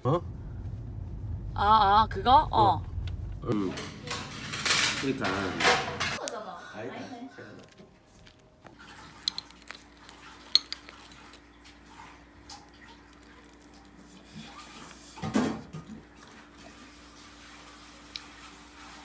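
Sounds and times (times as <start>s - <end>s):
faint steady hum: 0.0s - 5.0s
muffled thud: 0.2s - 3.5s
dishes and cutlery clinking: 9.0s - 11.5s.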